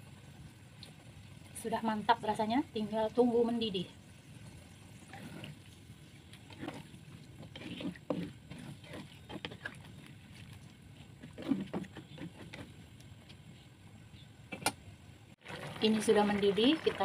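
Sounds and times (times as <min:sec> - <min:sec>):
liquid sloshing in a wok: 0:04.0 - 0:13.6
spatula scraping and knocking pan: 0:06.4 - 0:10.1, 0:11.0 - 0:12.8.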